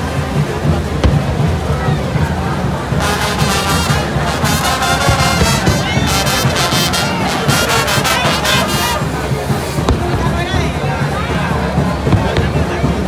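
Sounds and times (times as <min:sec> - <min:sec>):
brass band playing: 0:02.4 - 0:11.1.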